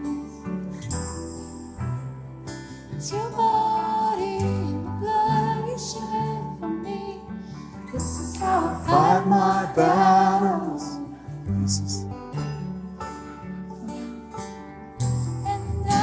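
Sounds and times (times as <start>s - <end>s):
guitars: 0.0s - 16.0s
low bass line: 8.0s - 16.0s
voices singing long notes: 8.3s - 12.1s.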